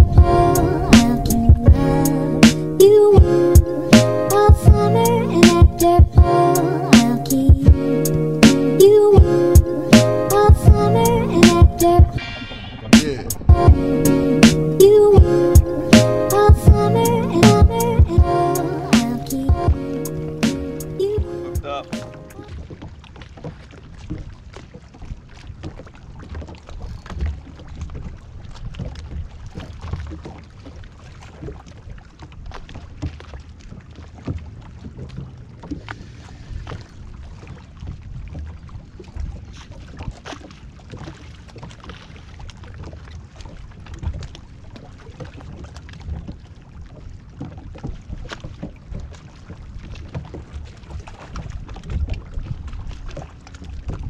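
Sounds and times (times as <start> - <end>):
wind rumble: 0.0 - 6.5, 9.0 - 19.9
waves lapping against boat hull: 0.0 - 54.0.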